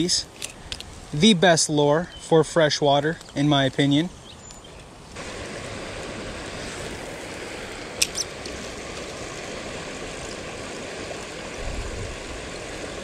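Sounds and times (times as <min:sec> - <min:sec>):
stream rushing over stones: 0:05.2 - 0:13.0.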